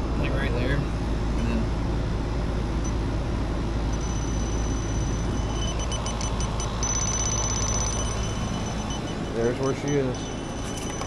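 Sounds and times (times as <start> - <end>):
steady low rumble: 0.0 - 11.0
rapid high beeps: 3.9 - 11.0
thin high tone: 3.9 - 11.0.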